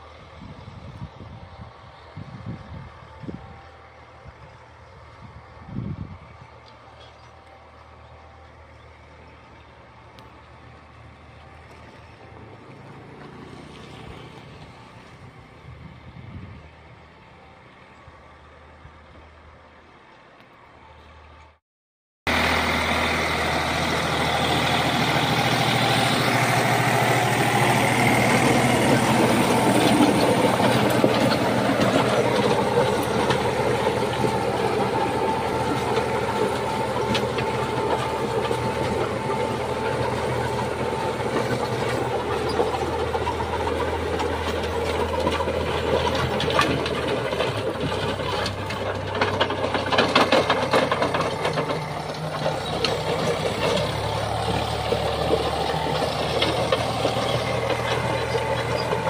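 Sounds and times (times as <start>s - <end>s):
tractor diesel engine running: 0.0s - 21.6s, 22.3s - 59.0s
rotavator blades churning soil: 22.3s - 59.0s.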